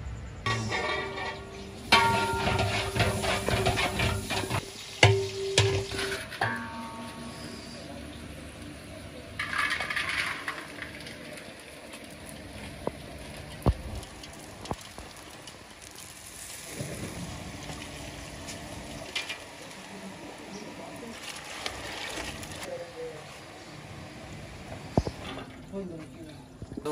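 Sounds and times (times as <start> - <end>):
water from hose running: 0.8 - 6.3, 9.4 - 22.7
raisins pouring into metal pot: 9.4 - 12.2.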